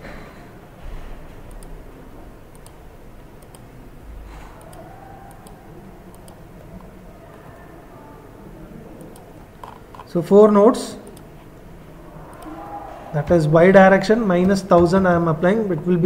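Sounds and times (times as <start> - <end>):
low background hum: 0.0 - 16.0
computer mouse clicking: 1.5 - 1.8, 2.5 - 2.8, 3.4 - 3.7, 4.5 - 7.7, 9.0 - 10.1, 12.2 - 12.6.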